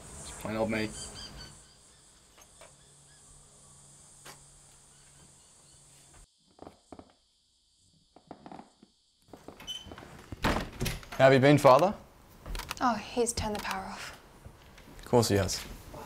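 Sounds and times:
high hiss: 0.0 - 6.3.

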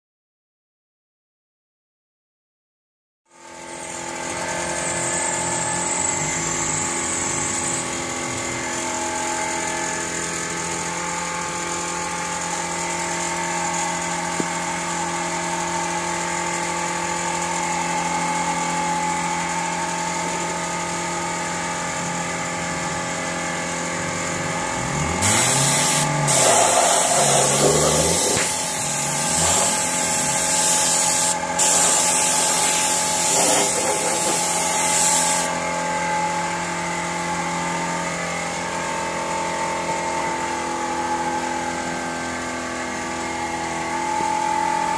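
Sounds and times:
machine drone with whine: 3.3 - 44.9
loud spraying hiss: 25.2 - 35.5.

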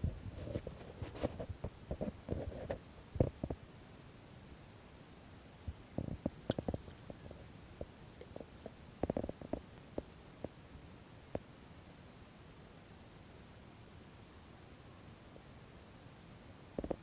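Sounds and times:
ripples lapping on pebbles: 6.0 - 10.6.

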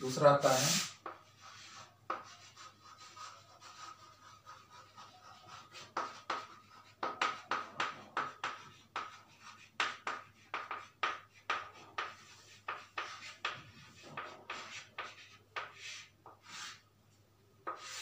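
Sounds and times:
chalk scratching on blackboard: 0.0 - 16.9, 17.6 - 18.0.

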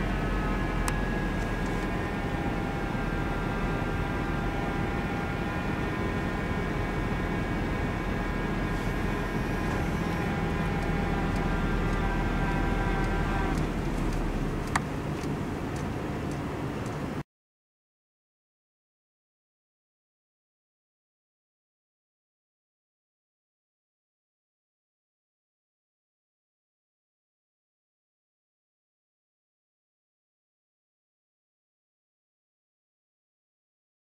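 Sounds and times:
vehicle engine rumbling: 0.0 - 17.2.

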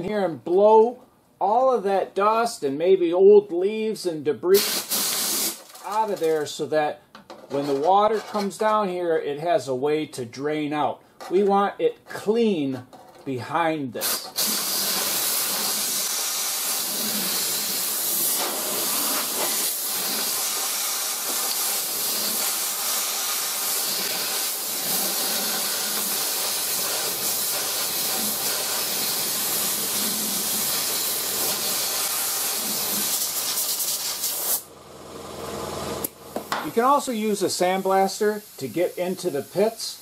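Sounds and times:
compressed-air blow gun hissing: 4.6 - 5.8, 14.0 - 34.6.

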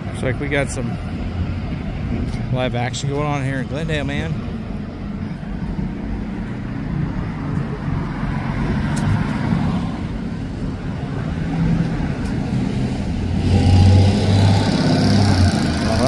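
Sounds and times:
vehicle engines running: 0.0 - 16.0.

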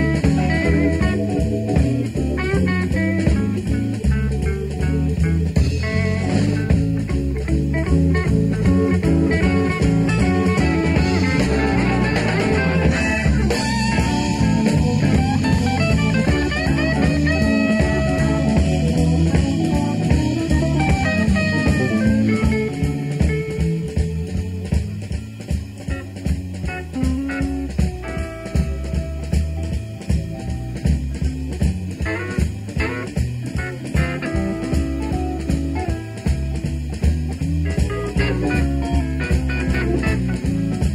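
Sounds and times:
bass guitar: 0.0 - 40.9
drums: 0.0 - 40.9
electric guitars: 0.0 - 40.9
live blues-rock band: 0.0 - 40.9.

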